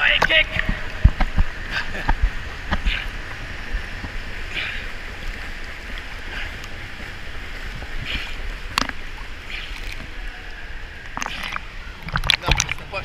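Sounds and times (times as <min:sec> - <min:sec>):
swimmer splashing water: 0:00.0 - 0:13.0.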